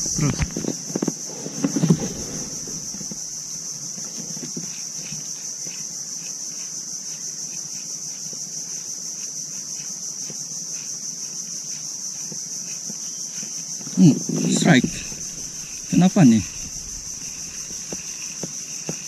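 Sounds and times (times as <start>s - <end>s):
insects droning: 0.0s - 19.0s
faint low knocks: 14.6s - 18.2s.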